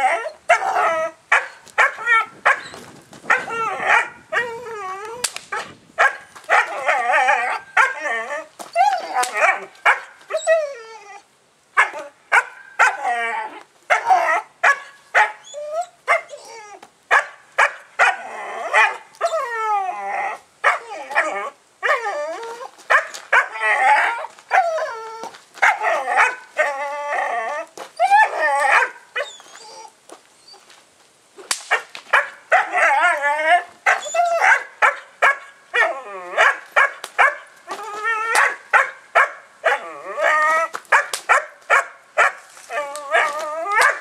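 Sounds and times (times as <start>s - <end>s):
puppy whining: 0.0s - 5.3s, 6.5s - 12.1s, 15.2s - 16.8s, 18.2s - 30.7s, 32.6s - 34.6s, 37.7s - 38.6s, 39.7s - 40.8s, 42.7s - 44.0s
puppy barking and yipping: 0.0s - 11.2s, 11.8s - 19.5s, 20.6s - 29.9s, 31.7s - 44.0s.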